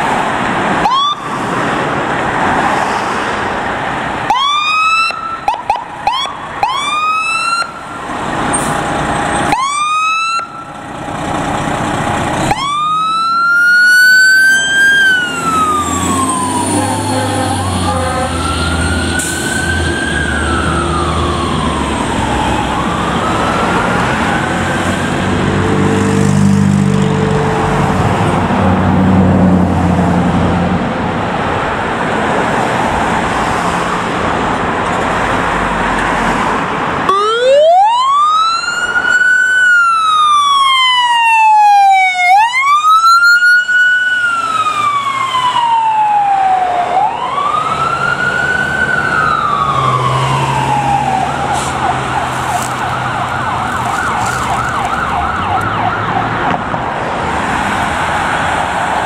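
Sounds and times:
ambulance engine running: 0.0s - 2.7s, 3.5s - 59.0s
electronic siren wailing and yelping: 0.8s - 1.3s, 4.3s - 7.9s, 12.5s - 25.2s, 37.1s - 56.4s.

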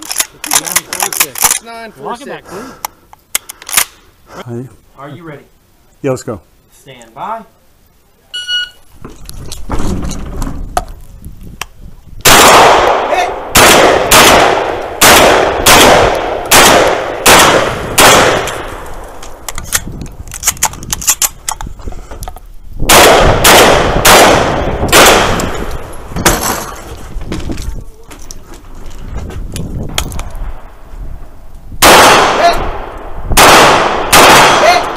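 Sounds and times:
shot timer beep: 8.4s - 8.8s
gunshots: 12.2s - 18.9s, 22.9s - 26.8s, 31.8s - 34.9s.

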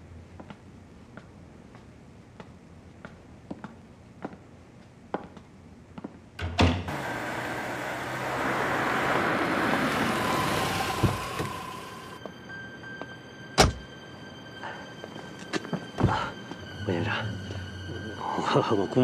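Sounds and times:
car engine and tyre noise: 6.9s - 13.9s
car door shutting: 9.1s - 12.1s, 13.6s - 13.9s.

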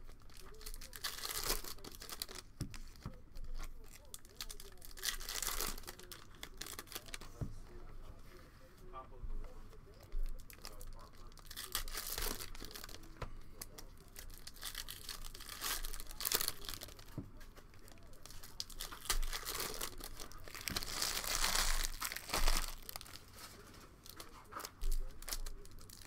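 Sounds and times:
foil wrappers tearing and crinkling: 0.0s - 7.3s, 10.4s - 26.0s.

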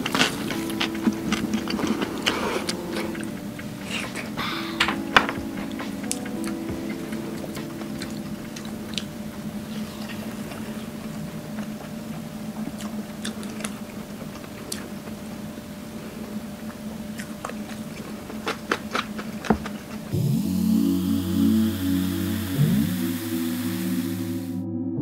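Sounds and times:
low hum: 0.0s - 14.4s, 20.1s - 25.0s
chewing: 0.0s - 20.1s.

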